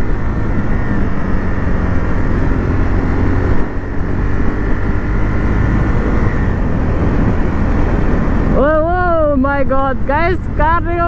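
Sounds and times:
motorcycle engine running: 0.0s - 11.0s
wind buffeting microphone: 0.0s - 11.0s.

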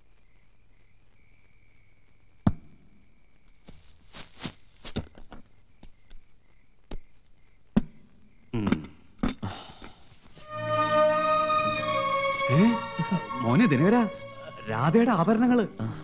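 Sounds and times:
rustling: 3.5s - 5.5s.

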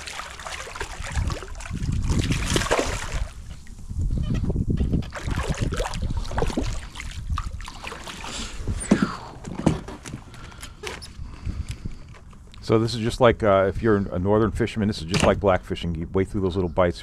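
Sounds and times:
fish splashing at water surface: 0.0s - 3.5s, 5.1s - 8.6s.

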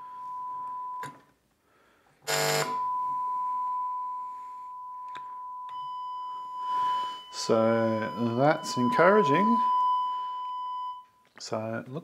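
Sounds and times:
steady sine test tone: 2.3s - 11.2s.

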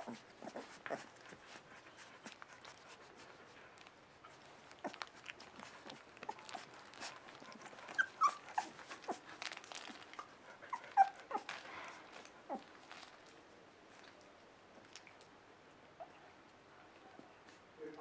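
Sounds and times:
puppies whimpering: 5.8s - 12.7s.

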